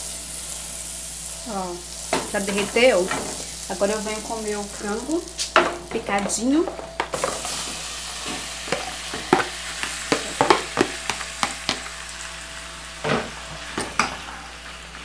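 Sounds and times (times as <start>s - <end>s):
chicken sizzling in butter: 0.0s - 15.0s.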